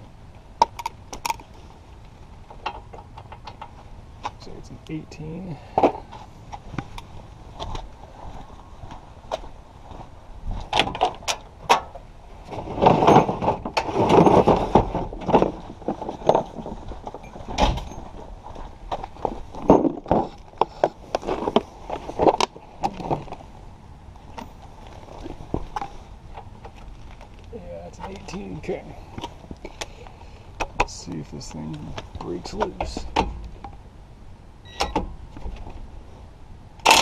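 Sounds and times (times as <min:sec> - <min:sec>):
footsteps: 0:05.8 - 0:10.8.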